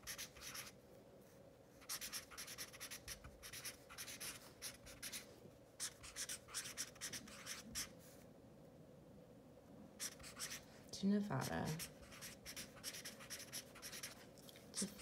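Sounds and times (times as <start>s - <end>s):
marker writing on paper: 0.0s - 0.8s, 1.8s - 5.2s, 5.8s - 7.9s, 10.0s - 10.6s, 11.4s - 14.2s, 14.8s - 15.0s.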